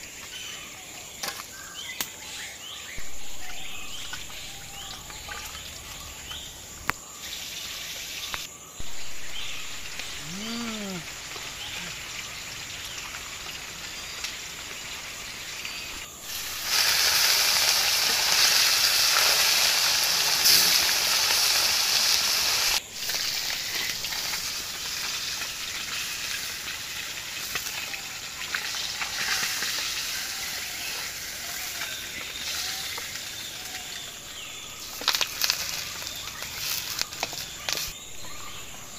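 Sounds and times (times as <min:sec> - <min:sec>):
fish sizzling in hot oil: 0:03.0 - 0:10.2, 0:11.0 - 0:34.2, 0:34.8 - 0:38.0
animal call: 0:08.8 - 0:12.2.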